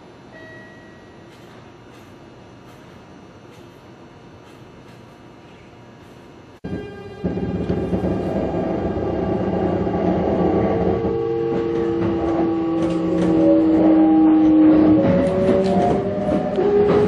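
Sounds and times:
electric train motor whine: 6.6 - 17.0.

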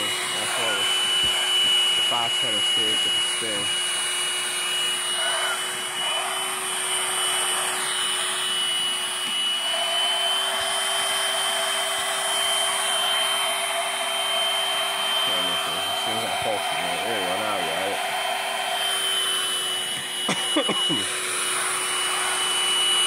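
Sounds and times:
stick vacuum running: 0.0 - 23.0.

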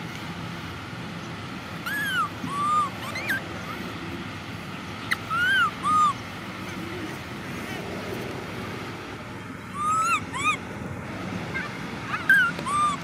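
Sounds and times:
baby monkey crying: 1.8 - 3.8, 5.0 - 6.8, 9.7 - 10.7, 11.6 - 13.0.

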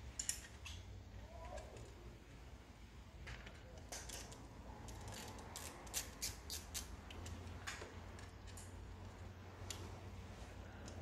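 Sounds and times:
small sharp clicks and scrapes: 3.3 - 10.0.

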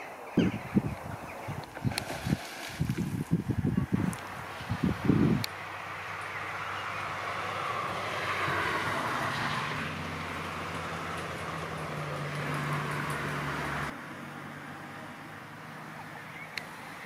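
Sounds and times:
low engine hum: 1.5 - 17.0
vehicle passing: 4.4 - 17.0.

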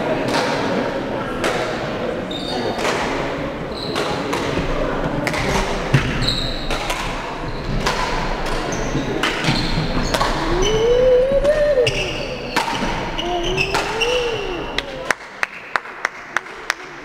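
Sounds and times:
people's voices in background: 0.0 - 17.0
sneaker squeaks on floor: 2.3 - 2.8, 3.7 - 4.2, 6.2 - 6.8, 8.7 - 10.9, 11.8 - 14.6
drawn-out rising and falling voice: 10.2 - 12.0, 13.2 - 15.1
racket hitting shuttlecock: 12.5 - 14.6.

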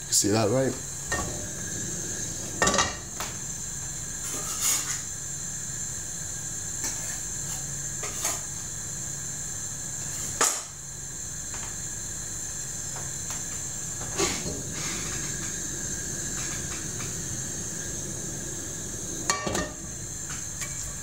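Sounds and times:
steady high hiss: 0.0 - 21.0
kitchen utensils clinking: 2.5 - 3.1, 19.3 - 21.0
frying pan clattering on hob grate: 19.2 - 20.9.

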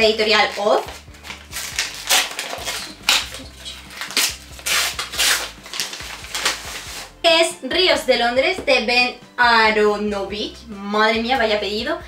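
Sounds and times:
paper envelope rustling: 0.3 - 7.2.

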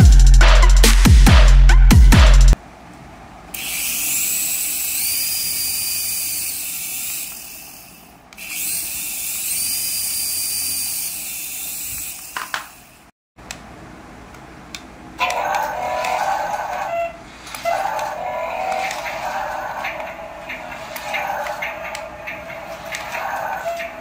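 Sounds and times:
toy helicopter rotors whirring: 3.5 - 13.1, 15.2 - 24.0.

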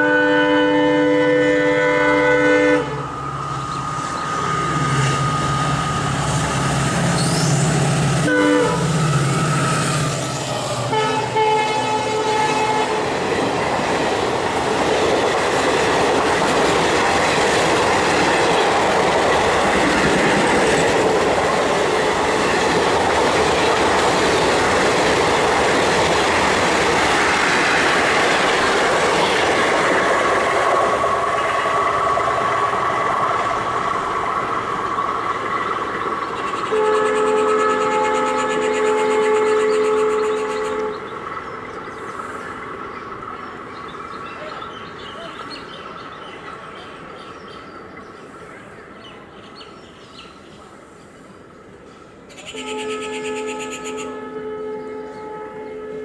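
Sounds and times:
locomotive horn: 0.0 - 3.1, 8.2 - 13.3, 36.7 - 41.1, 52.3 - 56.0
locomotive engine drone: 0.0 - 47.2.

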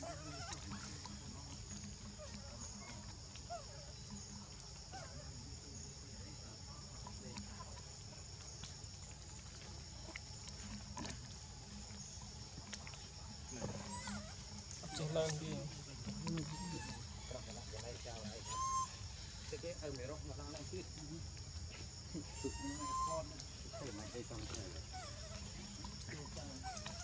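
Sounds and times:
high-pitched insect drone: 0.0 - 27.0
faint short squeaks: 13.6 - 15.5.

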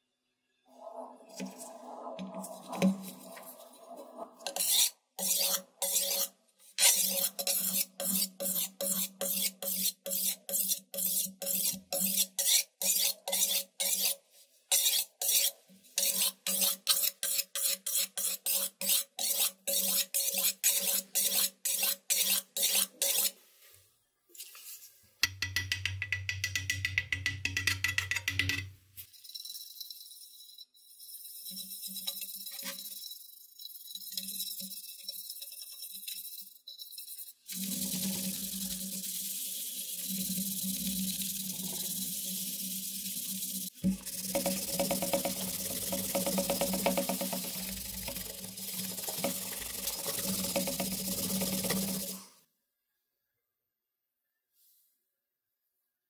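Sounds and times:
toothbrush scrubbing metal: 1.4 - 23.4, 30.9 - 52.2
sharpening stone scraping blade: 4.4 - 23.4, 30.8 - 37.6.

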